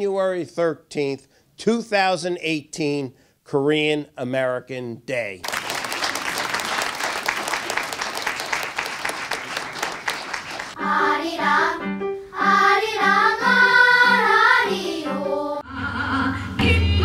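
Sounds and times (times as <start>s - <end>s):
audience applauding: 5.4s - 10.8s
children's choir singing: 9.6s - 17.0s.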